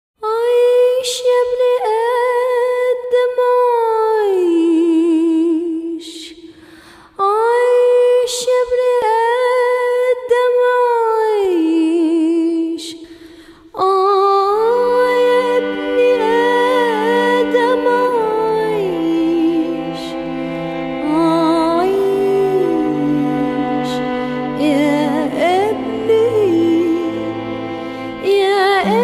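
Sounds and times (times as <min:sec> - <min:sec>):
solo voice singing without words: 0:13.7 - 0:29.0.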